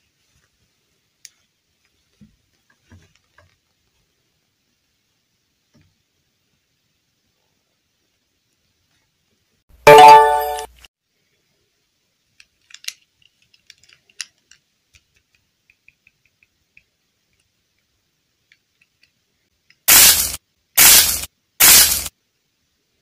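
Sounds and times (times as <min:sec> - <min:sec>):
faint clicks and crackles of handling: 0:00.1 - 0:04.2, 0:12.2 - 0:19.9
loud hiss bursts: 0:19.9 - 0:22.1.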